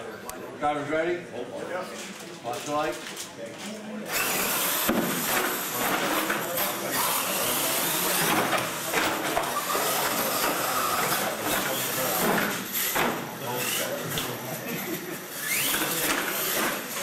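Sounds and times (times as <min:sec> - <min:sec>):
crowd chatter: 0:00.0 - 0:17.0
rc trucks motors hissing: 0:04.1 - 0:17.0.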